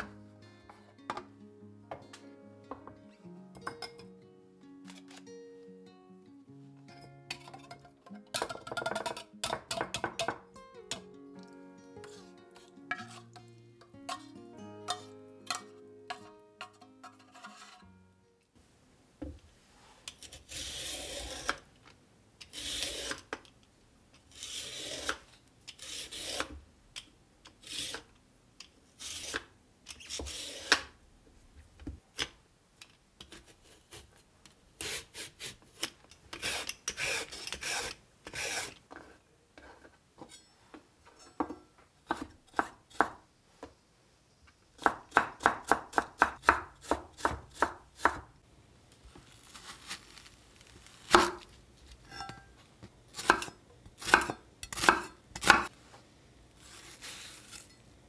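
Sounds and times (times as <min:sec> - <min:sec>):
knife chopping on wooden board: 0:44.8 - 0:48.3, 0:53.2 - 0:55.7.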